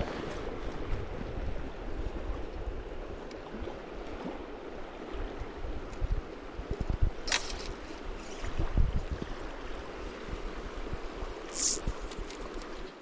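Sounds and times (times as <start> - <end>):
sharp hiss: 11.5 - 11.9.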